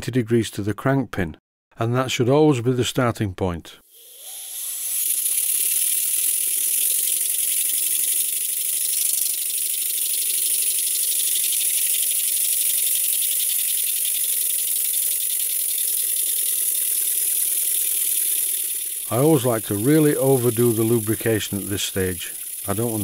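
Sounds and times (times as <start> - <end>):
model steam engine hissing exhaust: 3.9 - 23.0
light mechanical rattle: 4.2 - 23.0.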